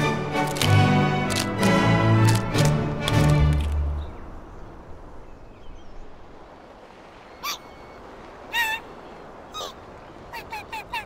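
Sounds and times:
chick squeaky calls: 0:07.4 - 0:07.9, 0:08.5 - 0:08.9, 0:09.5 - 0:11.0.

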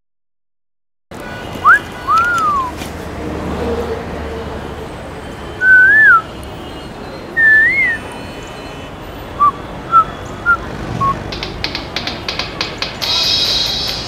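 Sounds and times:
person whistling: 0:01.6 - 0:02.8, 0:05.6 - 0:06.2, 0:07.4 - 0:08.0.

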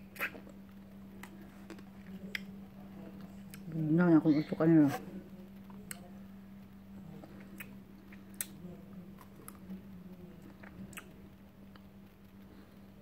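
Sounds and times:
low steady hum: 0:00.0 - 0:13.0
person chewing: 0:00.1 - 0:02.5, 0:07.1 - 0:09.7.

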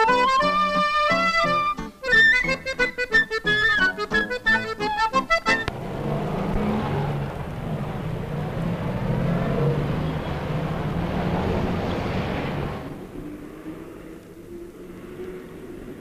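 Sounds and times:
cars driving past: 0:05.4 - 0:16.0.

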